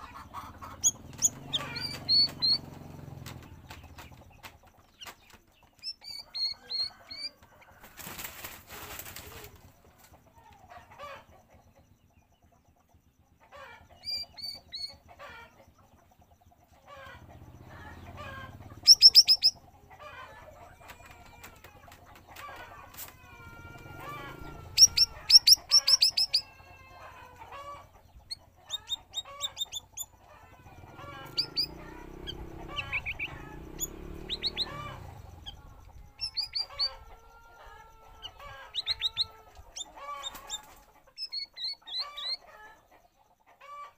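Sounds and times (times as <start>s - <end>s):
bird chirping and warbling: 0.5s - 7.3s, 14.0s - 15.0s, 17.4s - 19.7s, 23.3s - 37.2s, 38.1s - 42.5s.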